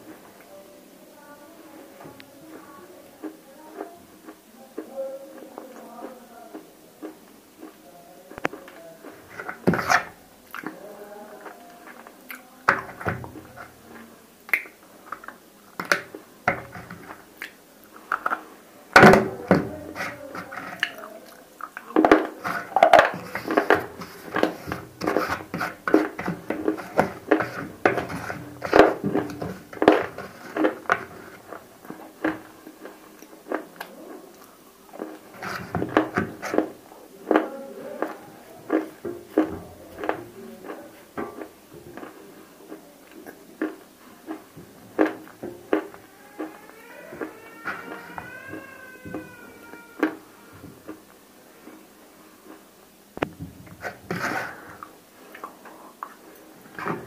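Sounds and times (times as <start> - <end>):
crunching and chewing clay: 19.2 - 52.7.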